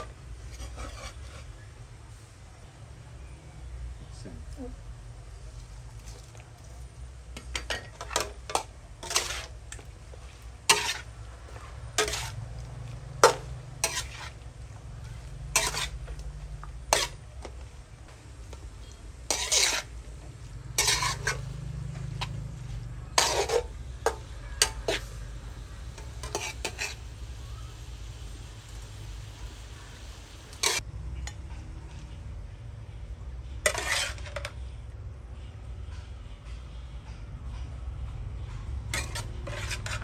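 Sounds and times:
metal spatula scraping a wok: 0.0s - 2.2s, 7.4s - 32.2s, 33.4s - 34.9s, 38.4s - 40.0s.

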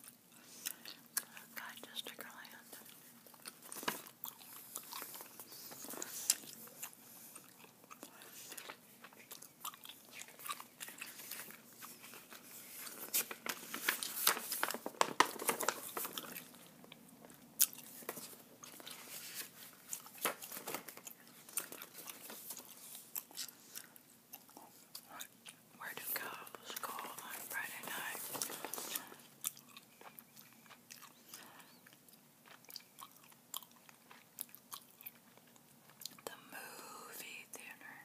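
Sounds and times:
gum chewing: 2.8s - 12.0s, 21.0s - 25.6s, 28.9s - 36.3s
paper sheets crinkling: 10.3s - 16.6s, 17.8s - 23.0s, 26.9s - 29.2s.

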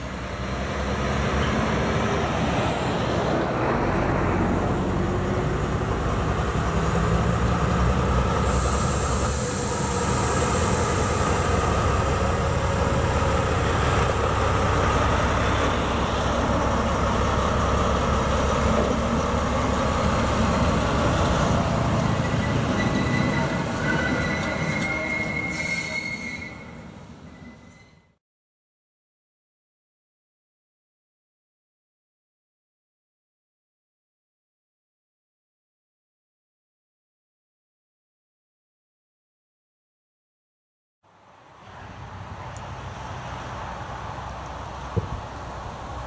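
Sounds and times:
diesel locomotive engine droning: 0.0s - 28.2s, 41.1s - 46.0s
high wheel squeal: 21.9s - 28.2s.

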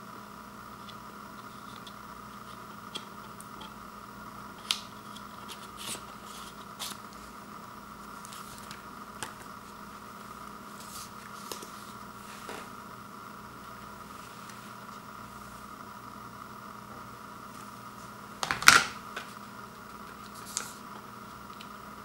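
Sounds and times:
steady background hum: 0.0s - 22.0s
paper and card rustling: 4.6s - 7.3s, 10.7s - 12.7s, 20.0s - 20.8s.

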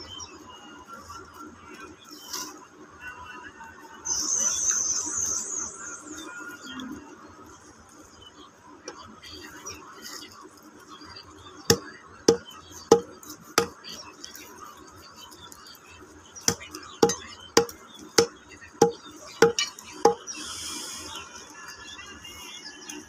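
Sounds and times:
knife chopping chicken: 11.7s - 13.8s, 16.5s - 20.2s.

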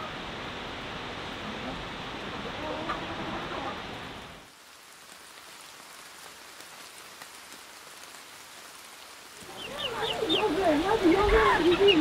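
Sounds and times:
rain falling steadily: 0.0s - 12.0s
raindrop ticks: 4.9s - 11.9s.

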